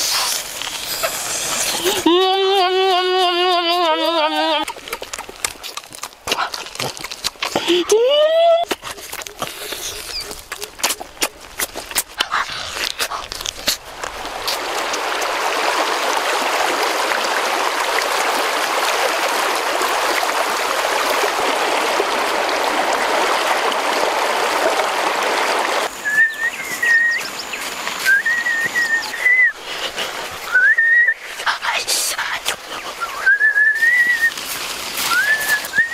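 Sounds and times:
stream running over stones: 0:00.0 - 0:35.9
person whistling short notes: 0:26.0 - 0:27.2, 0:28.0 - 0:29.6, 0:30.5 - 0:31.2, 0:33.0 - 0:34.3, 0:35.1 - 0:35.9.

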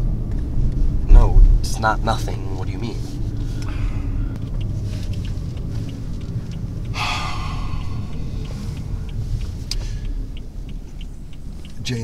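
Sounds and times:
car cabin road rumble: 0:00.0 - 0:12.0
breathy exhale: 0:03.4 - 0:04.4, 0:06.9 - 0:10.2.

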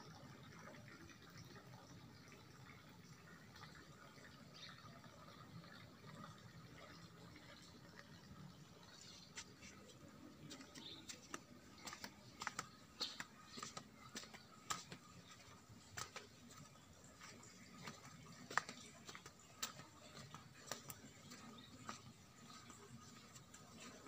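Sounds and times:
faint steady background noise: 0:00.0 - 0:24.0
footsteps on stone paving: 0:09.1 - 0:24.0.

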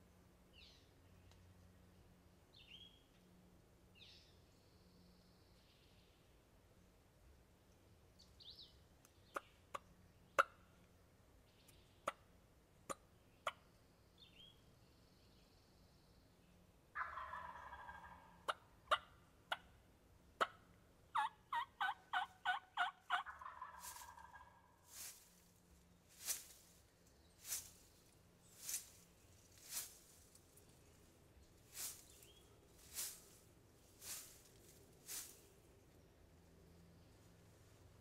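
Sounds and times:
turkey gobbling: 0:17.0 - 0:19.6, 0:21.2 - 0:24.6.

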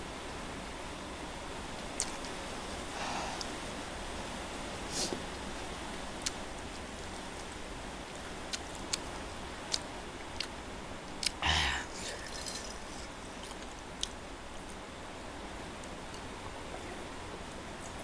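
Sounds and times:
steady hiss: 0:00.0 - 0:18.0
mouth clicks and smacks chewing: 0:06.2 - 0:06.4, 0:08.5 - 0:09.1, 0:09.7 - 0:11.4.

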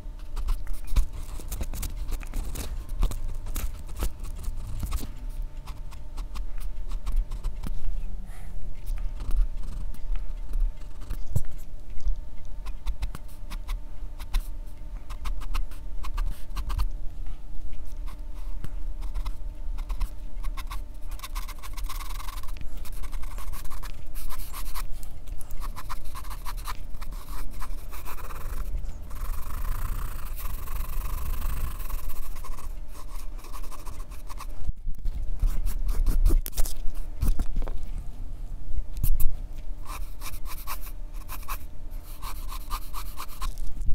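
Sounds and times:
pencil scratching on paper: 0:09.2 - 0:09.9, 0:15.1 - 0:16.9, 0:18.0 - 0:24.9, 0:25.6 - 0:34.6, 0:35.4 - 0:36.4, 0:39.8 - 0:43.6.

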